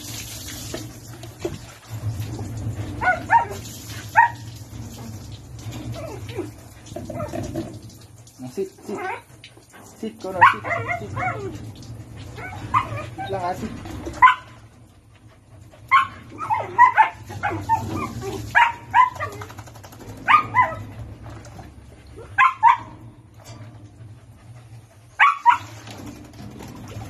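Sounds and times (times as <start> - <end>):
low steady hum: 0.0 - 27.0
dog barking: 3.0 - 4.4, 10.4 - 11.5, 14.2 - 14.6, 15.9 - 19.5, 20.2 - 20.9, 22.3 - 23.0, 25.2 - 25.8.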